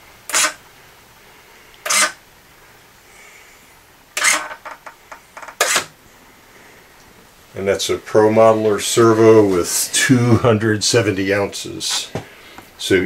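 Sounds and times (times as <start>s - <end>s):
servo whirring: 0.3s - 0.6s, 1.8s - 2.2s, 4.2s - 4.5s.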